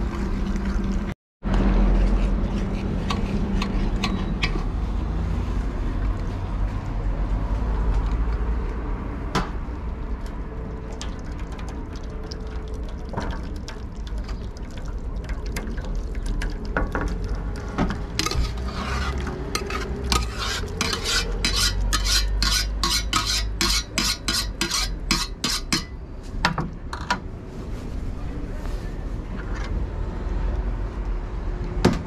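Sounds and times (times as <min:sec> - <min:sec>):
metal utensil scraping steel bowl: 0:01.8 - 0:04.8, 0:18.0 - 0:26.0.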